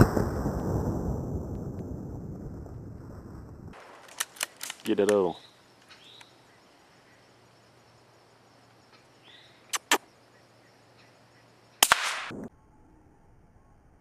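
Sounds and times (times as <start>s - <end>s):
suppressed rifle shots: 11.8s - 12.5s.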